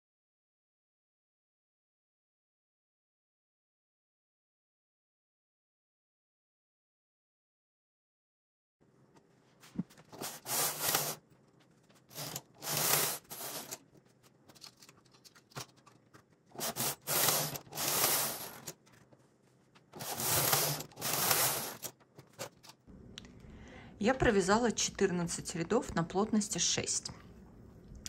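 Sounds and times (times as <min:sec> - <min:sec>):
knitting machine carriage scraping: 0:10.0 - 0:11.2, 0:12.0 - 0:13.9, 0:16.5 - 0:18.9, 0:19.9 - 0:22.5.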